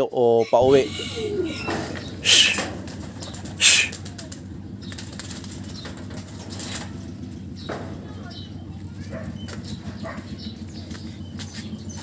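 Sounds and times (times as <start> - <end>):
pigeon wings flapping: 2.2 - 7.0.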